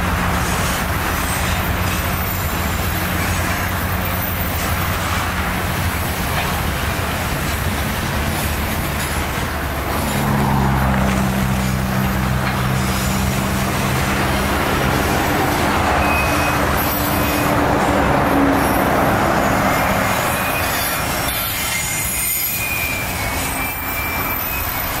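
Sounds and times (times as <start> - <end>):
train wheels rumbling on rails: 0.0 - 25.0
high-pitched wheel squeals: 15.3 - 25.0.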